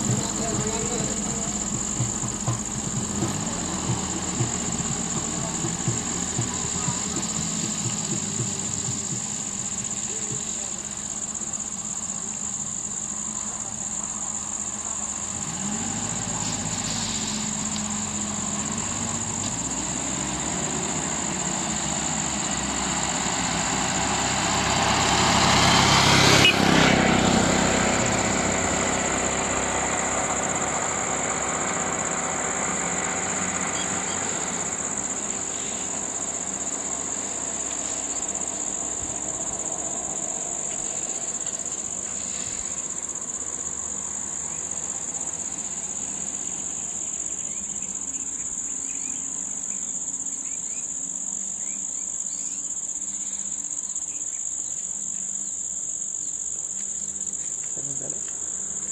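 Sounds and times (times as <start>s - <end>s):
tyre noise: 0.0s - 11.3s
high-pitched insect drone: 0.0s - 58.9s
minibus engine pulling away: 0.0s - 58.9s.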